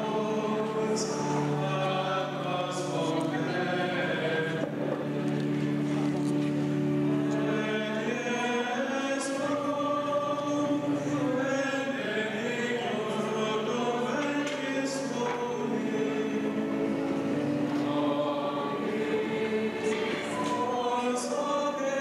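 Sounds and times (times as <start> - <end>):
men's choir chanting: 7.0 - 22.0.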